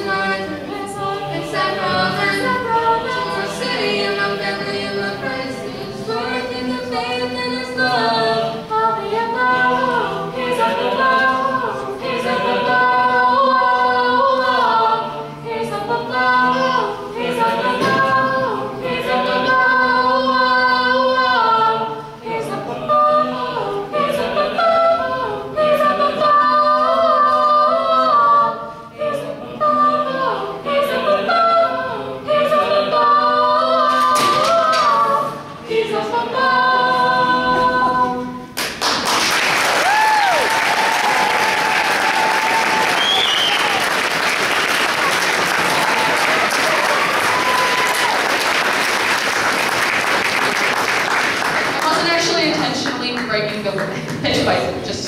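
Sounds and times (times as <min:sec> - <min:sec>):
a cappella group singing: 0:00.0 - 0:39.3, 0:40.2 - 0:52.0
audience applause: 0:38.6 - 0:52.1
audience cheering: 0:39.4 - 0:49.2.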